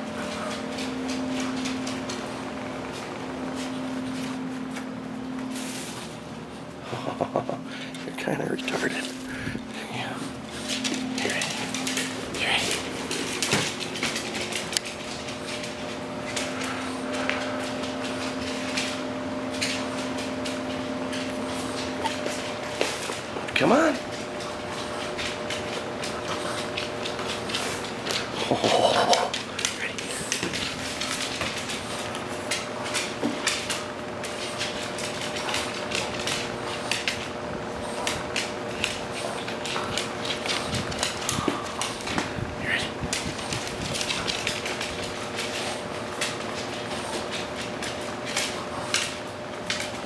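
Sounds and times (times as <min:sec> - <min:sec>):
steady low hum: 0:00.0 - 0:50.0
dog claws clicking on wooden floor: 0:10.5 - 0:50.0.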